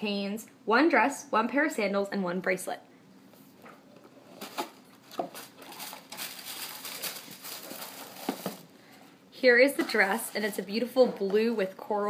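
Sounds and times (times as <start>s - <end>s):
tissue paper rustling: 4.3s - 8.7s.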